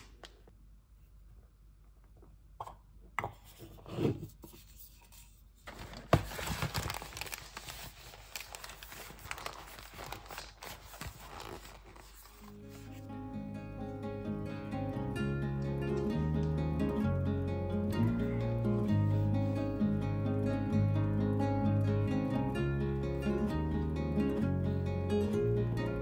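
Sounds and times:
cardboard crinkling and rustling: 0:05.6 - 0:13.1
cardboard tearing: 0:05.7 - 0:12.7.

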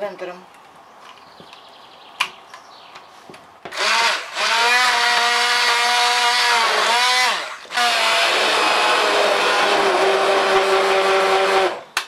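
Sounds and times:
stick blender motor humming: 0:03.7 - 0:11.8.

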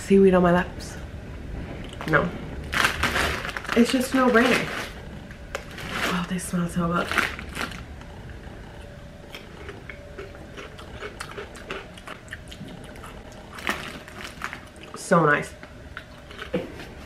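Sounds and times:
crisps being chewed: 0:07.0 - 0:08.1, 0:08.7 - 0:15.0, 0:15.6 - 0:17.0.

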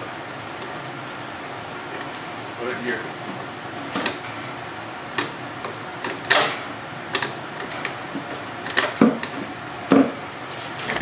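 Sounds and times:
sharp clicks and knocks of tools: 0:05.2 - 0:08.0, 0:08.6 - 0:10.1.

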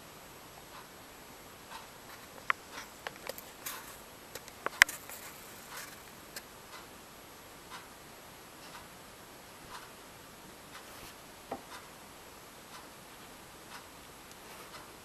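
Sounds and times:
clock ticking softly: 0:00.0 - 0:15.0
sharp clicks and taps: 0:01.7 - 0:06.5.

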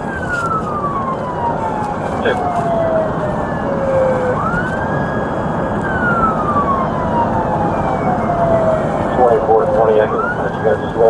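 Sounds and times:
police siren wailing: 0:00.0 - 0:11.0
road and engine noise: 0:00.0 - 0:11.0.

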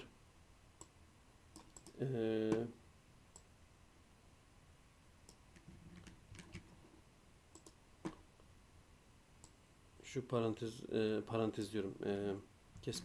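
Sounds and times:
mouse and keyboard clicks: 0:07.6 - 0:08.2.

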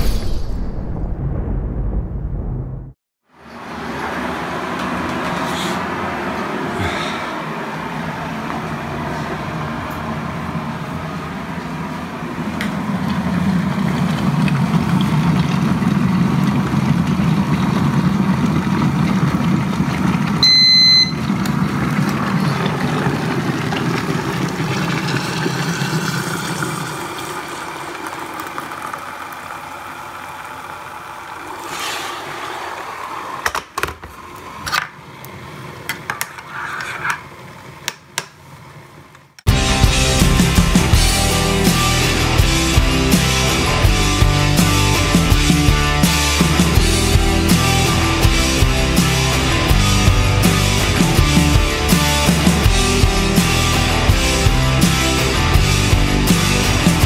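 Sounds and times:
short electronic beep: 0:20.4 - 0:21.2.

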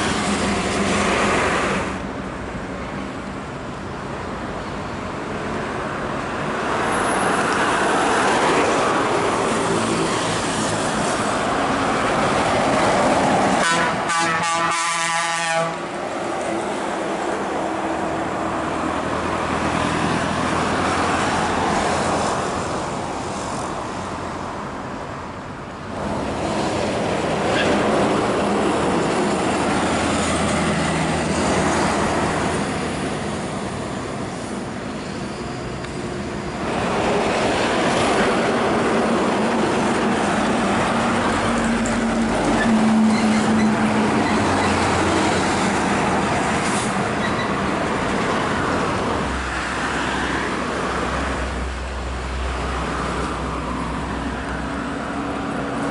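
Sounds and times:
heavy trucks passing: 0:00.0 - 0:55.9.

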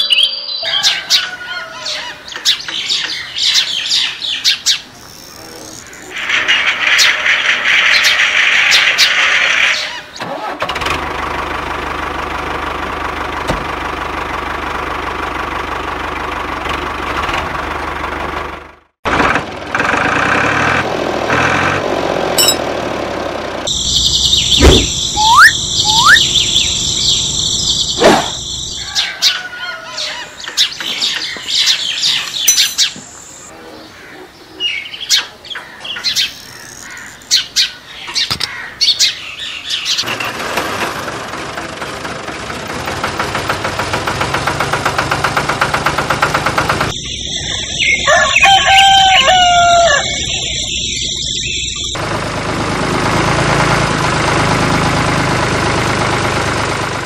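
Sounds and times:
birds chirping: 0:00.0 - 0:10.2, 0:23.7 - 0:40.1, 0:46.8 - 0:52.0.

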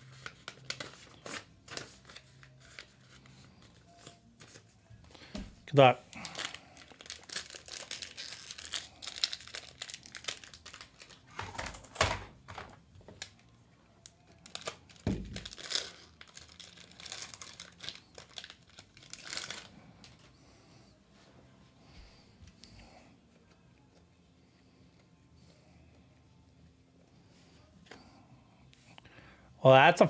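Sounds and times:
foil wrapper crinkling and tearing: 0:00.0 - 0:03.8, 0:06.1 - 0:11.4, 0:13.2 - 0:20.2.

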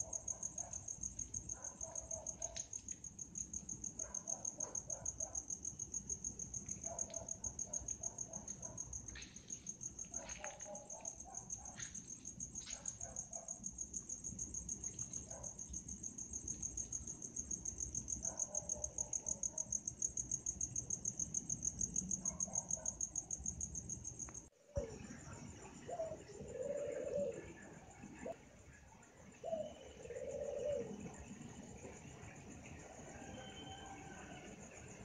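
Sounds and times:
crickets trilling chorus: 0:00.0 - 0:35.0
short lower insect calls: 0:21.3 - 0:31.8, 0:32.7 - 0:34.4.

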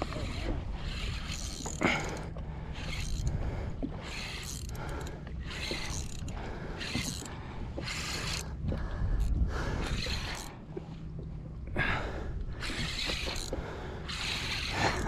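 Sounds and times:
pedal drive whirring: 0:00.0 - 0:03.4, 0:04.0 - 0:08.4, 0:12.6 - 0:15.0
wind rumble on microphone: 0:02.7 - 0:04.2, 0:05.4 - 0:13.7.

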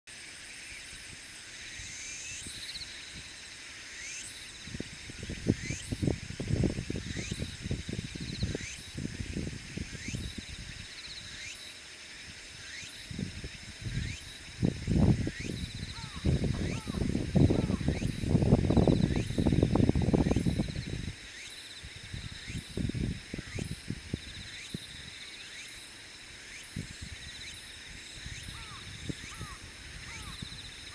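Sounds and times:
insects calling in chorus: 0:00.1 - 0:30.9
wind rumbling on microphone: 0:04.5 - 0:11.5, 0:12.2 - 0:25.2, 0:26.6 - 0:30.9.

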